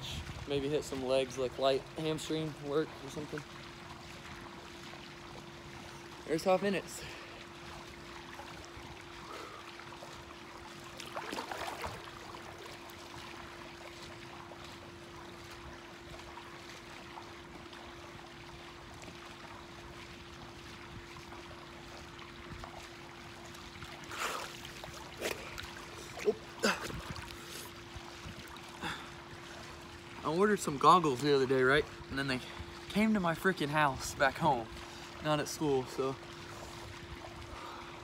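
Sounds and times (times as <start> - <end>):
faint steady hum: 0.0 - 38.0
pool water splashing: 0.0 - 38.0.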